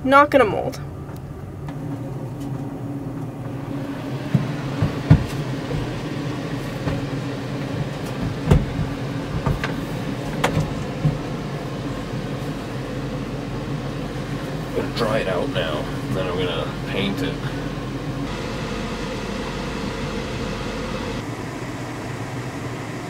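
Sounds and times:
electric blower running: 3.5 - 14.4, 17.8 - 23.0.

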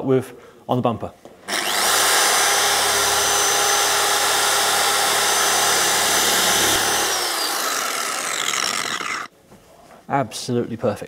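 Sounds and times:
machine polisher whining: 1.5 - 9.3.

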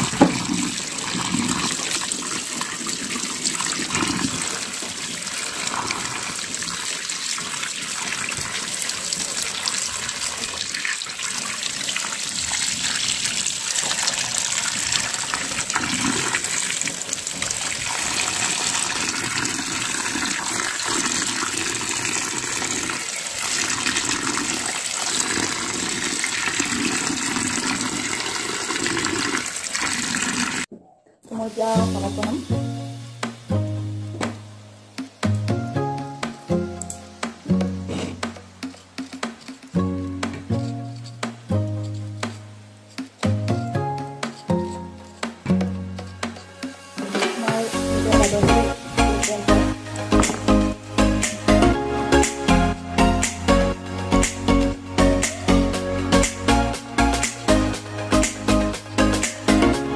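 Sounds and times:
tap water pouring into bowl: 0.0 - 30.7
vegetables rinsed by hand: 0.0 - 32.6, 44.2 - 52.4.

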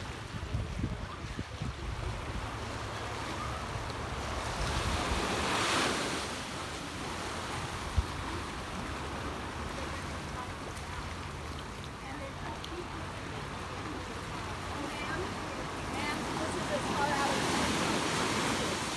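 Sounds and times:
wind rumble on microphone: 0.0 - 3.1
small waves washing onto sand: 0.0 - 18.9.

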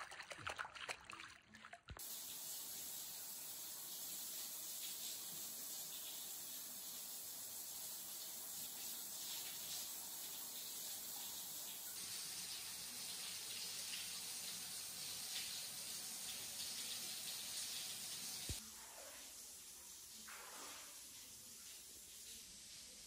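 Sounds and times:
water pouring into a tub: 0.0 - 3.3.

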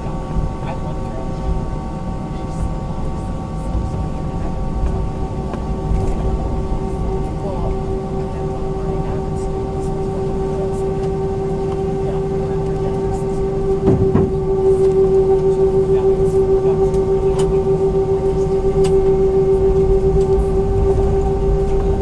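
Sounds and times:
jet engine hum: 0.0 - 22.0
short low thump: 13.8 - 14.4.

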